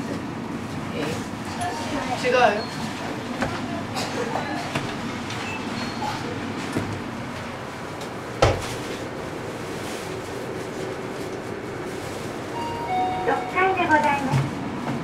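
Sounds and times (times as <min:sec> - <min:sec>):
elevator ride noise: 0:00.0 - 0:15.0.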